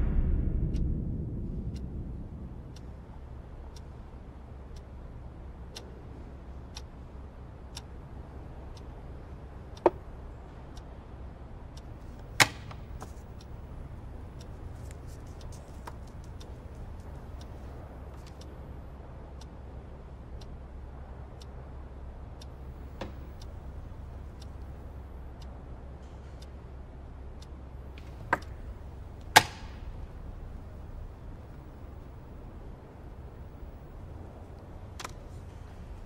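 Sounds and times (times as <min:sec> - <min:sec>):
clock ticking: 0:00.0 - 0:36.0
low steady hum: 0:00.0 - 0:36.0.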